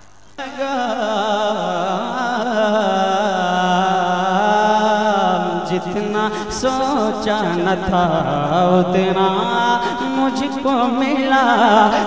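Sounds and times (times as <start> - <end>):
man singing into a microphone: 0.4 - 12.0.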